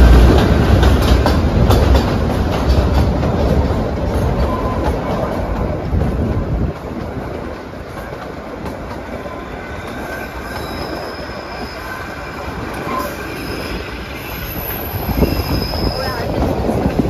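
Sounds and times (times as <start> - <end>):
train wheels rumbling on track: 0.0 - 17.0
thin wheel squeal: 9.3 - 16.3.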